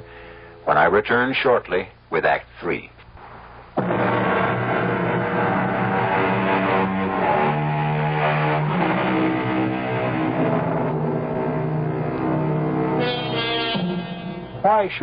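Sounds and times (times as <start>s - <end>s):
instrumental bridge music: 8.5s - 15.0s.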